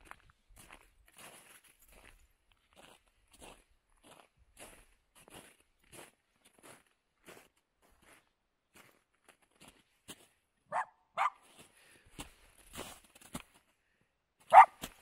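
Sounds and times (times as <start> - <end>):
footsteps crunching on snow: 0.0 - 10.4, 11.2 - 13.7, 14.5 - 15.0
dog barking: 10.7 - 11.4, 14.5 - 14.8.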